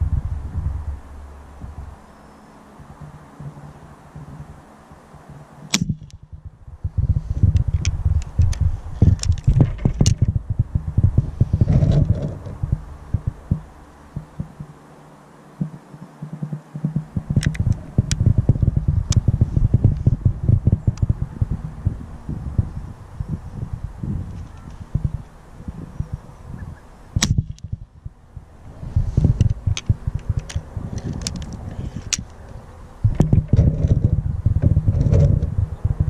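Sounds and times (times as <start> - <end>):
wind buffeting microphone: 0.0 - 14.9, 15.6 - 36.0
faint clicks: 15.6 - 18.2.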